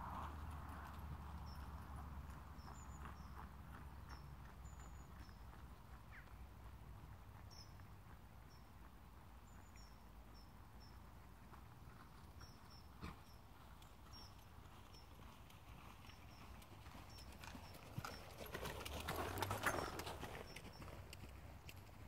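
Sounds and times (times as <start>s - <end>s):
horse hoofbeats on sand: 11.4s - 22.0s.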